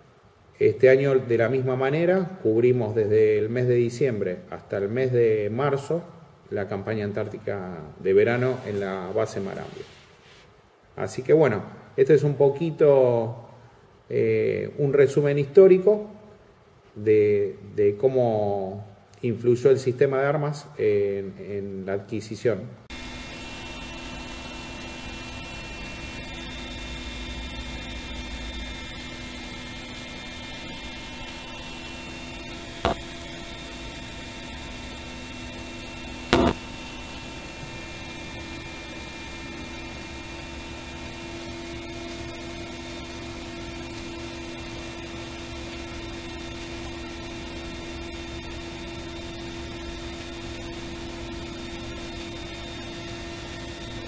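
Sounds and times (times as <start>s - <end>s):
helicopter hum and whine: 22.9s - 38.6s
sharp clicks: 36.3s - 36.6s.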